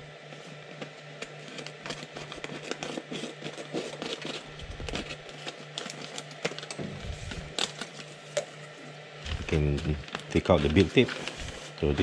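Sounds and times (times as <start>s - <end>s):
scissors cutting foil: 1.2s - 6.8s, 9.3s - 12.0s
foil pouch crinkling: 1.2s - 8.2s, 9.2s - 12.0s.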